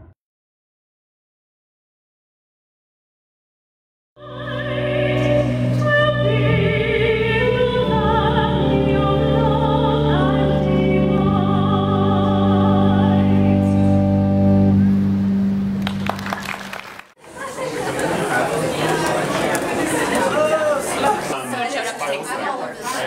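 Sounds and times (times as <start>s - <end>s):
woman singing with vibrato: 4.2s - 14.0s
sustained low instrumental chords: 4.2s - 16.4s.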